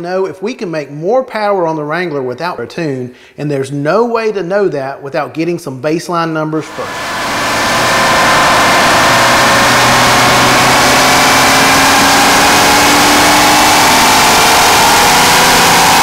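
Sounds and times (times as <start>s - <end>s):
car engine revving under load: 6.6s - 16.0s.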